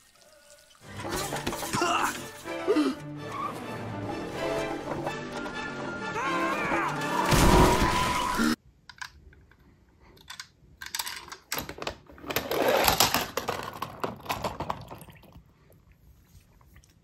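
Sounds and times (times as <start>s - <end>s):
film soundtrack: 0.8s - 8.6s.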